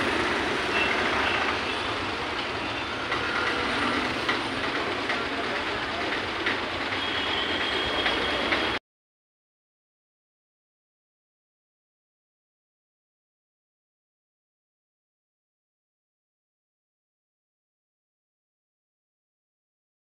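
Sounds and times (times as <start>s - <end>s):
traffic and bustle: 0.0s - 8.8s
scattered clicks and knocks: 0.9s - 8.8s.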